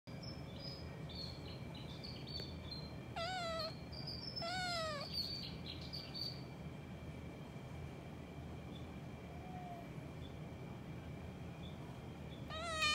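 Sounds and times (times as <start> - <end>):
high bird chirps: 1.2 - 6.4, 12.5 - 12.9
cat meowing: 3.2 - 3.8, 4.4 - 5.2, 12.5 - 12.9.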